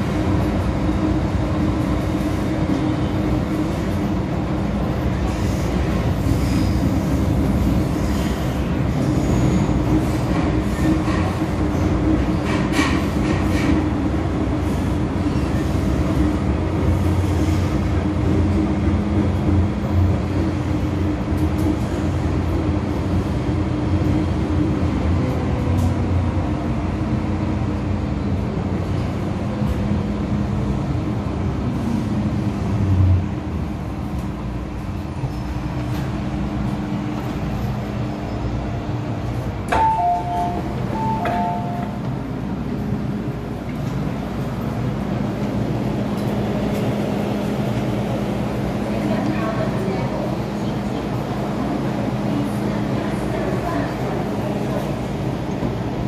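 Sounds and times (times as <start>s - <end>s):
train motor and wheel noise: 0.0s - 56.0s
two-note door chime: 39.8s - 41.9s.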